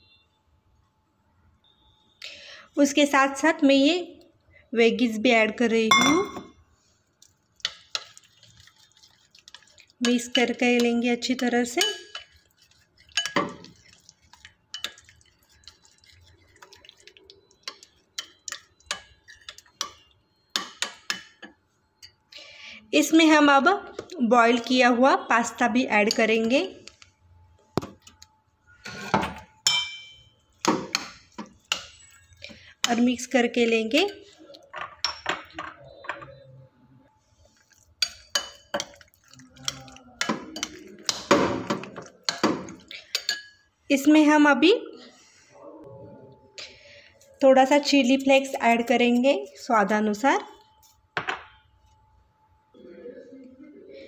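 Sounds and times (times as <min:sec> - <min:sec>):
spoon scraping glass bowl: 0:07.6 - 0:21.4, 0:30.9 - 0:33.3, 0:37.5 - 0:44.1.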